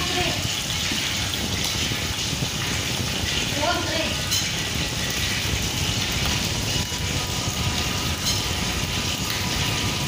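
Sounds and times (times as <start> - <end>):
soup bubbling in a pot: 0.0 - 10.0
spatula stirring in a pot: 4.2 - 9.5.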